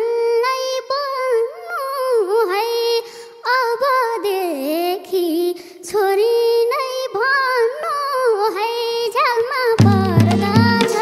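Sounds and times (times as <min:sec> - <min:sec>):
girl singing folk song solo: 0:00.0 - 0:11.0.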